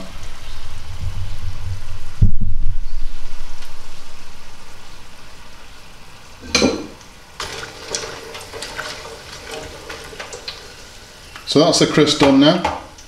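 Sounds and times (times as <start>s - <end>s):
potato slices sizzling in oil: 3.4s - 12.2s.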